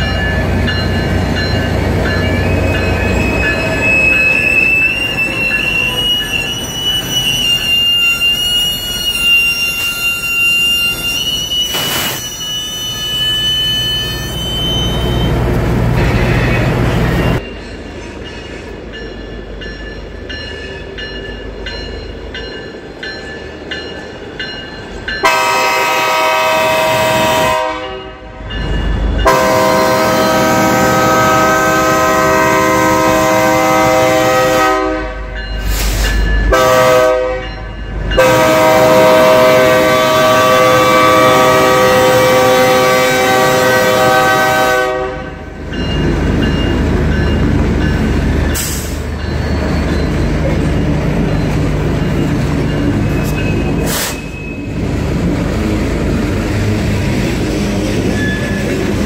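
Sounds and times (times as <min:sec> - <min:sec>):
diesel locomotive engines rumbling: 0:00.0 - 0:59.0
locomotive air horn blasts: 0:25.2 - 0:28.4, 0:29.2 - 0:35.3, 0:36.5 - 0:37.5, 0:38.2 - 0:45.4.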